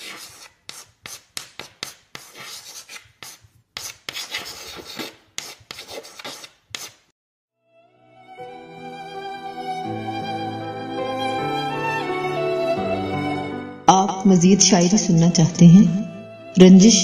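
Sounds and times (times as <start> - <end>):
pen scratching on paper: 0.0 - 7.0.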